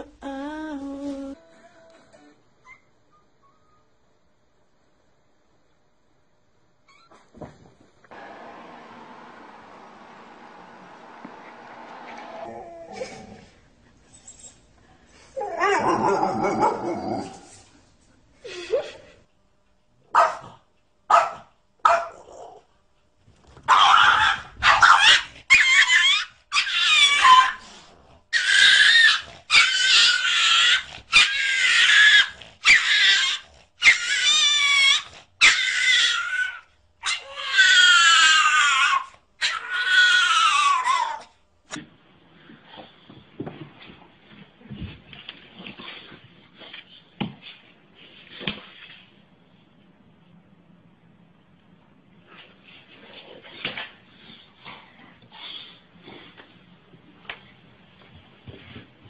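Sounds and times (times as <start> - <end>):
dog growling: 8.1 - 13.9
dog whining: 8.1 - 14.7, 28.4 - 41.4
dog yipping: 23.7 - 27.6, 28.4 - 41.3.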